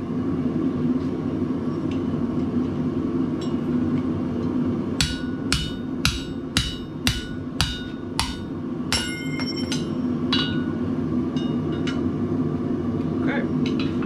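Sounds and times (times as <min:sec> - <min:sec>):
forge humming: 0:00.0 - 0:14.0
hammer striking steel on anvil: 0:05.0 - 0:10.8
light ringing hammer taps: 0:09.0 - 0:10.0.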